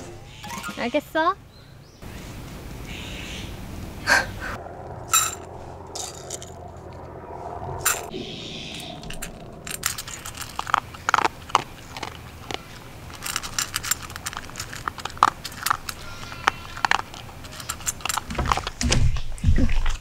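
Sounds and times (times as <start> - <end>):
dog crunching dry kibble: 9.2 - 18.8
kibble clicking on metal bowl: 9.2 - 18.8.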